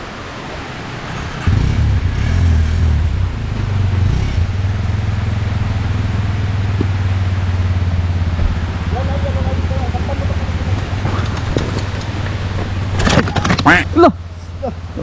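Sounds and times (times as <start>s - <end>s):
dirt bike engine running: 1.3s - 14.0s.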